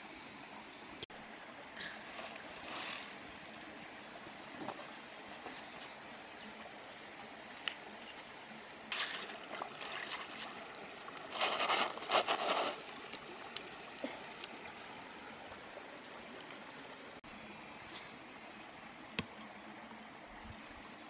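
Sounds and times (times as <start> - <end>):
stream trickling: 0.4 - 21.0
water splashing in basket: 8.9 - 12.9.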